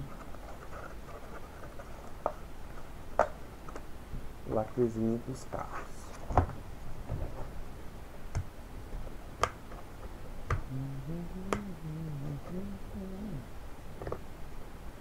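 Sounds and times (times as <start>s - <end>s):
man humming low: 10.6s - 13.6s.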